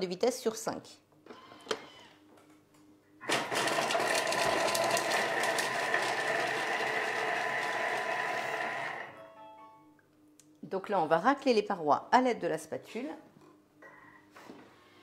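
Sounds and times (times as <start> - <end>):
food processor chopping: 3.2 - 9.1.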